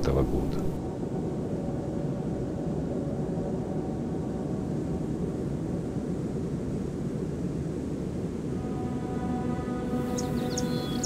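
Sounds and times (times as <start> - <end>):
steady low rumbling: 0.0 - 1.3.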